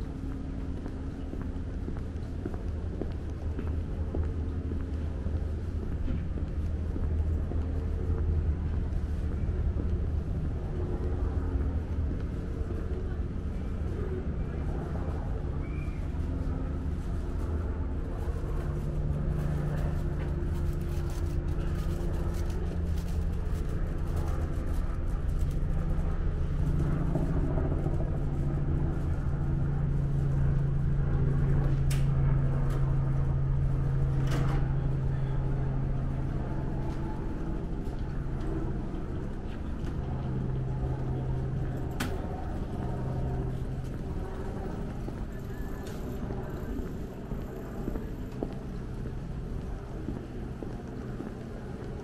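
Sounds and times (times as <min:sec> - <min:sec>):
people's voices: 0:32.6 - 0:52.0.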